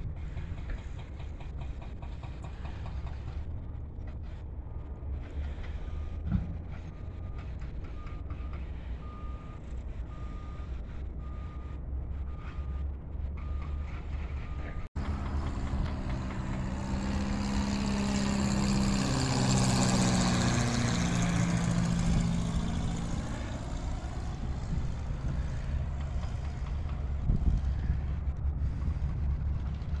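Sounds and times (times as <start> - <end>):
propeller plane flying overhead: 0.0 - 9.3, 12.3 - 30.0.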